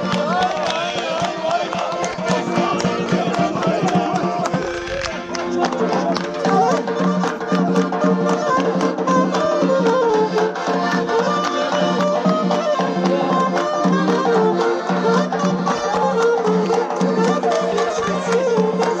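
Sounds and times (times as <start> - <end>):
steady drum beat: 0.0 - 4.9
accordions and saxophone melody: 0.0 - 19.0.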